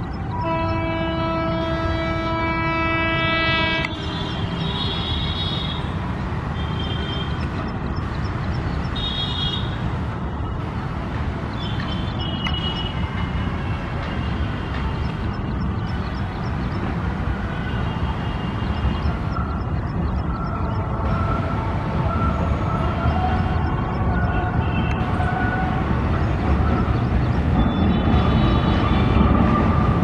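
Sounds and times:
train wheels rumbling on bridge: 0.0 - 30.0
locomotive horn: 0.3 - 5.9.

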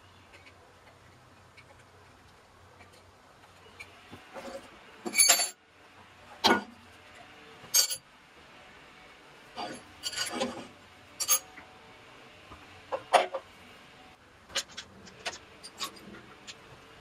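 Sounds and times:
steel parts knocking and clinking: 5.1 - 5.6.

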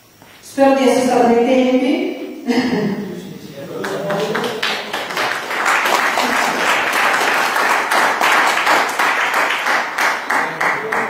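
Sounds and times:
audience applauding: 3.7 - 11.0.

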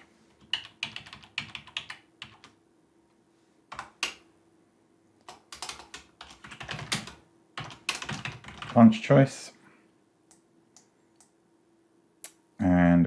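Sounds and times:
typing on computer keyboard: 0.0 - 2.6, 3.7 - 4.2, 5.2 - 8.8.

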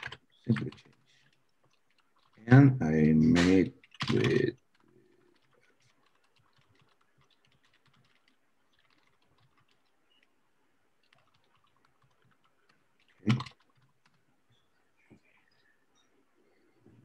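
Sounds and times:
keyboard typing: 0.0 - 2.6, 3.2 - 10.4, 11.0 - 14.3.

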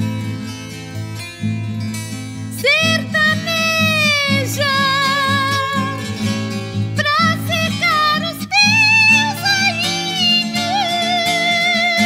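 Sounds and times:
plucked acoustic guitar: 0.0 - 12.0
woman singing with vibrato: 2.5 - 12.0.

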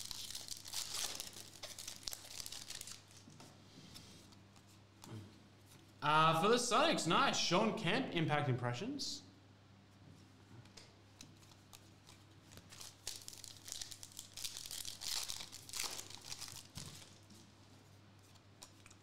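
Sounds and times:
foil wrapper crinkling and tearing: 0.0 - 3.3, 11.4 - 17.4.

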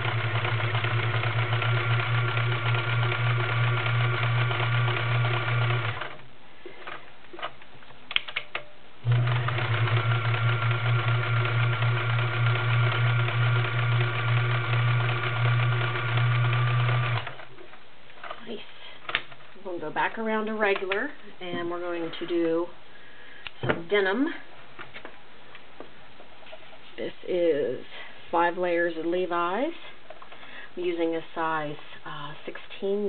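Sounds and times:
sewing machine running: 0.0 - 6.2, 9.0 - 17.4.

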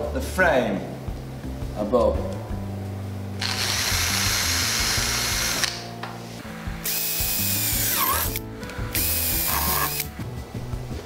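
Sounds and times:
cordless drill drilling: 3.4 - 5.8, 6.8 - 10.1.

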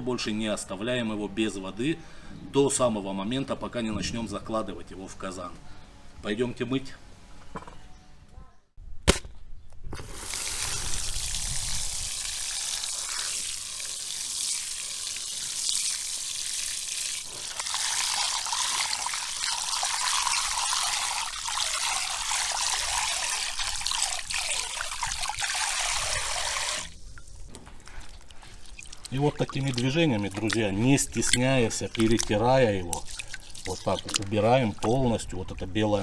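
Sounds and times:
tap water splashing into bowl: 28.8 - 35.0.

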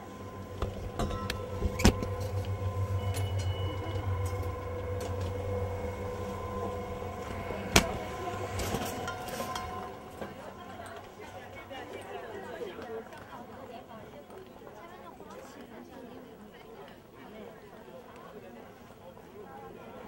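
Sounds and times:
low hum: 0.0 - 14.6.

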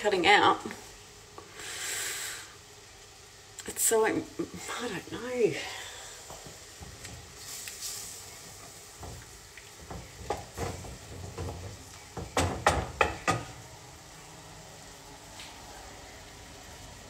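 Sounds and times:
faint steady sizzle: 0.0 - 17.0
utensil knocking against pan: 9.8 - 13.6.

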